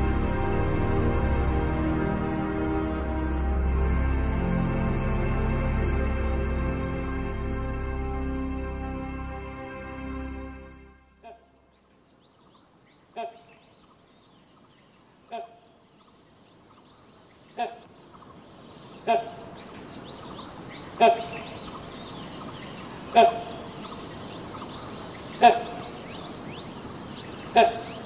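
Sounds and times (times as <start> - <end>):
high chirping chorus: 11.2 - 28.0
hornbill calls: 12.4 - 28.0.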